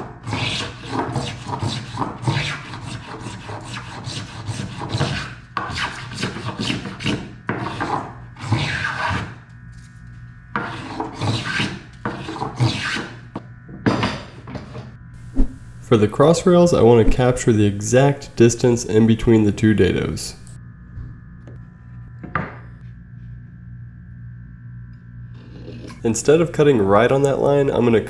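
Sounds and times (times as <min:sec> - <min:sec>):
spokeshave rasping on wood: 0:00.2 - 0:09.3, 0:10.6 - 0:13.1.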